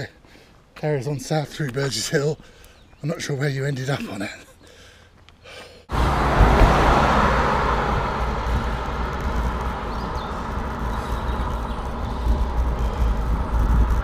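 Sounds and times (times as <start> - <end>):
road traffic noise: 4.6 - 14.0
steady low rumble: 5.9 - 14.0.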